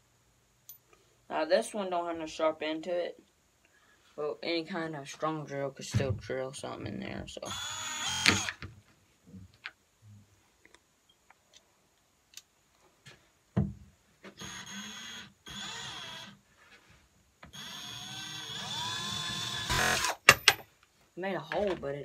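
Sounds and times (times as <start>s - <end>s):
cordless drill whining: 7.5s - 8.6s, 14.4s - 16.4s, 17.5s - 20.2s.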